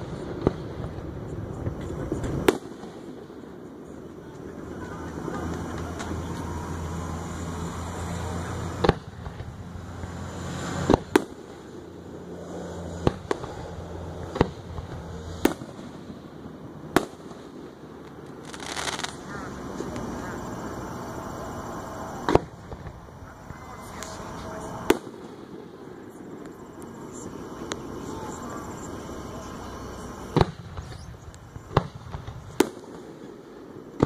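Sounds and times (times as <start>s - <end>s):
firework shells bursting: 5.3s - 12.0s, 12.9s - 34.0s.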